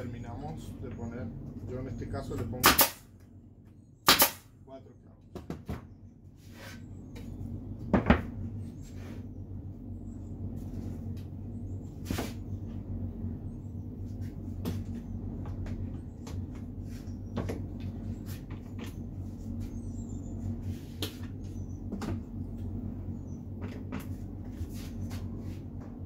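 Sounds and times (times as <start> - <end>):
low motor hum: 0.0 - 26.0
wooden boards knocking on workbench: 7.9 - 8.3.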